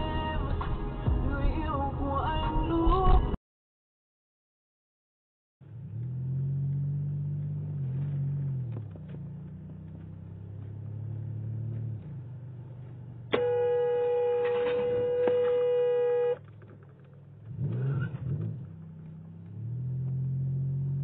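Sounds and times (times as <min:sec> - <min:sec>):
car engine humming: 0:05.6 - 0:21.0
car horn long blast: 0:13.3 - 0:16.4.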